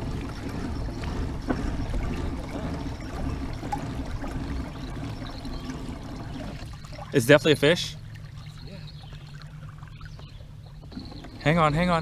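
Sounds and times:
low rumble: 0.0s - 7.1s
water lapping against kayak hull: 0.0s - 12.0s.

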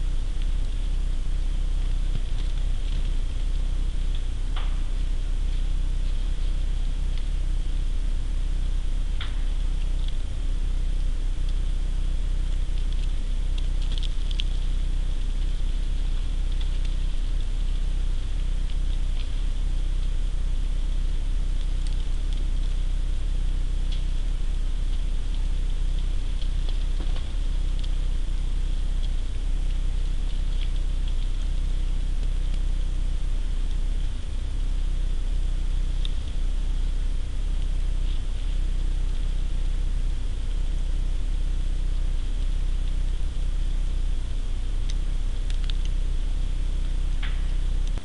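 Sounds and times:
snow and ice pattering through branches: 0.0s - 48.0s
steady low hum: 0.0s - 48.0s
faint light ticks: 41.9s - 48.0s.

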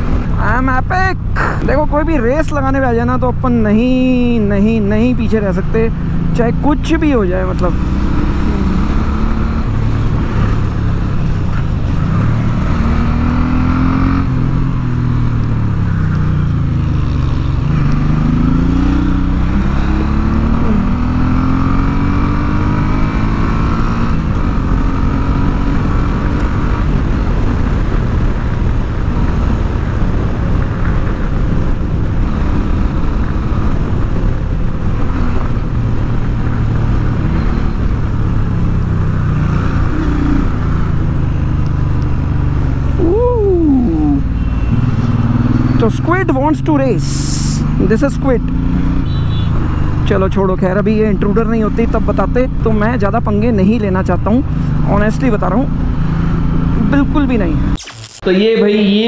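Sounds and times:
motorcycle engine running: 0.0s - 57.8s
wind noise on microphone: 24.1s - 43.4s.

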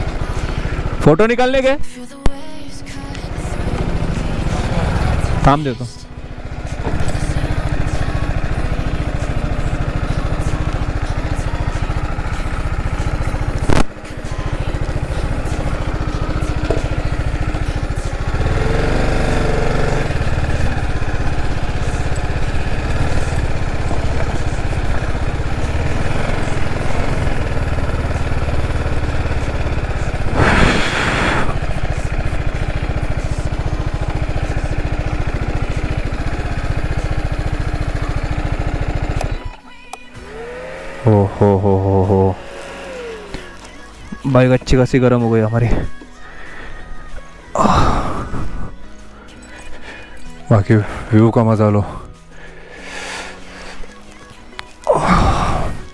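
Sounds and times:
motorcycle engine running: 0.0s - 55.9s
rush of noise: 30.3s - 31.7s.

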